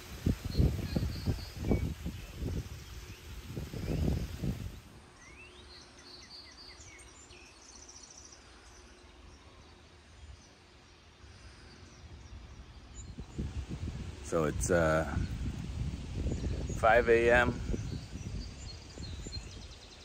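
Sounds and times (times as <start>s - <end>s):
rising bird whistles and trills: 0.0s - 8.3s, 17.5s - 20.0s
songbirds chirping: 0.0s - 20.0s.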